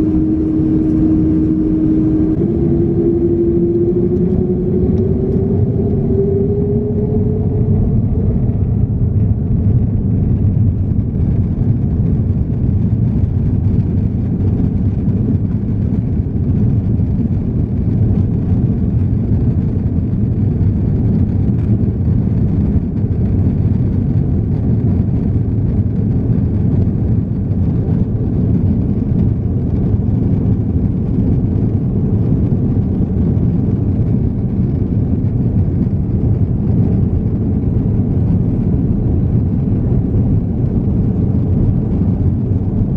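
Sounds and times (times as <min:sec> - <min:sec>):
jet engines rumbling at takeoff: 0:00.0 - 0:42.9.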